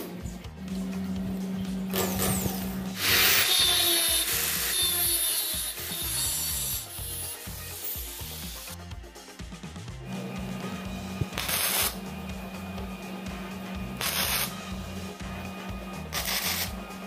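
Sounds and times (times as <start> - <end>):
angle grinder grinding steel: 0.8 - 8.8, 11.4 - 12.1, 13.8 - 14.9, 16.1 - 16.8.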